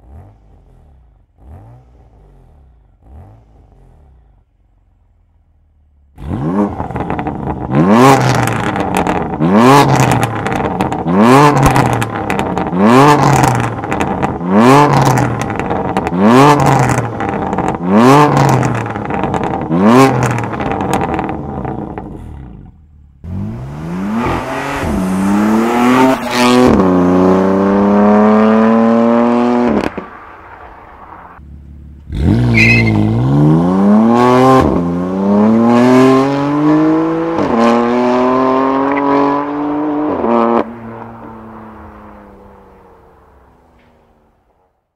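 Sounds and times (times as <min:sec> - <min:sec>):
car accelerating hard: 0:00.0 - 0:04.6, 0:06.2 - 0:43.5
exhaust crackles: 0:00.0 - 0:36.5
car engine revving: 0:00.0 - 0:43.9.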